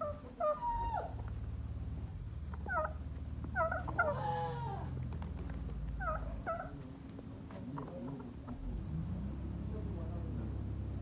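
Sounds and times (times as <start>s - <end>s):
farmyard animals calling: 0.0s - 1.4s, 2.5s - 5.2s, 5.8s - 6.9s.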